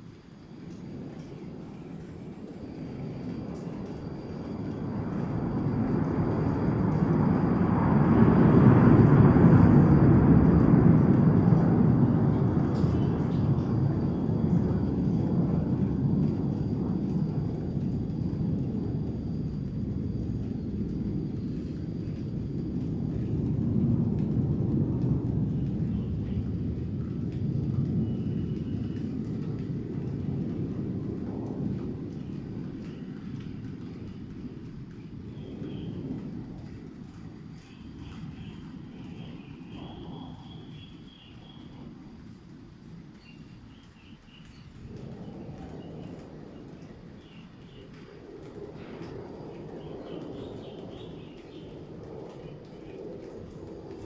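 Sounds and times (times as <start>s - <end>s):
distant jet engines rumbling: 0.0s - 54.0s
small birds chirping: 37.5s - 41.8s, 43.1s - 44.8s, 46.8s - 48.0s, 49.8s - 53.0s.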